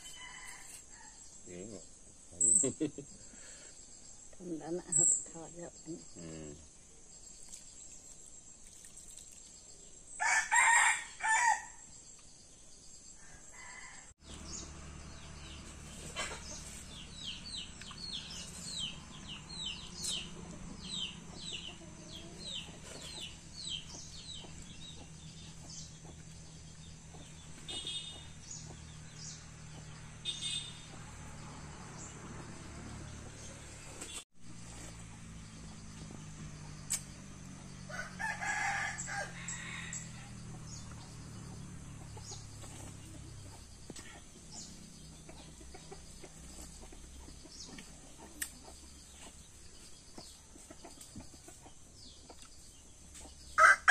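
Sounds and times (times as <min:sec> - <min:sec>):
rooster crowing: 0:10.2 - 0:11.8, 0:37.9 - 0:40.6, 0:53.6 - 0:53.9
bird chirping: 0:14.2 - 0:34.2.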